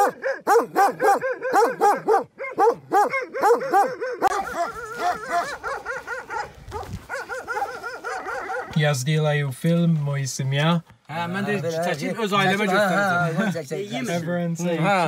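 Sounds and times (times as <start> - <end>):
dog barking rapidly: 0.0 - 8.8.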